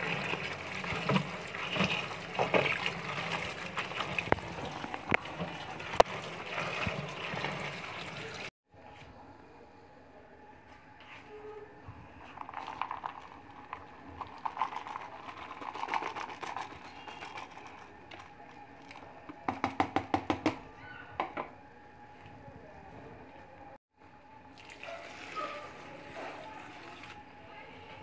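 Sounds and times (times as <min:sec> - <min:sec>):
plastic mug knocking on steel bowl: 0:19.5 - 0:20.6.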